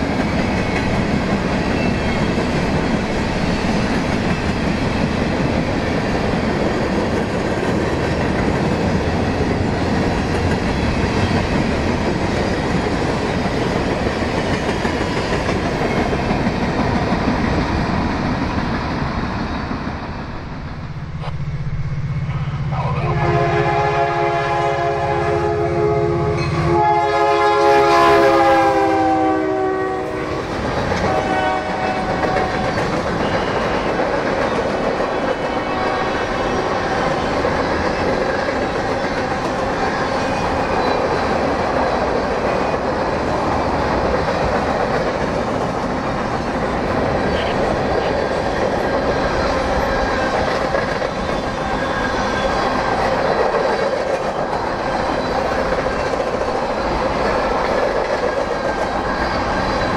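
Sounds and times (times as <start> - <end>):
freight train wheels clacking: 0.0 - 20.2, 27.7 - 59.9
locomotive air horn: 23.0 - 30.4, 31.0 - 32.6, 35.7 - 36.3.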